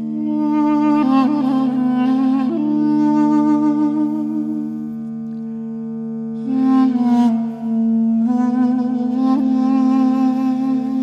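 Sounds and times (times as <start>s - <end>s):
slow music with held notes: 0.0s - 11.0s.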